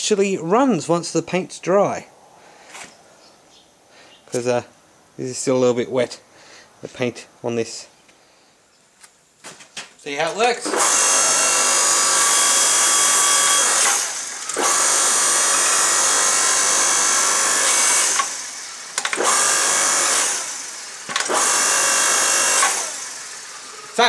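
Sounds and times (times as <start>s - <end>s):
hydraulic pump motor whining: 10.6s - 24.0s.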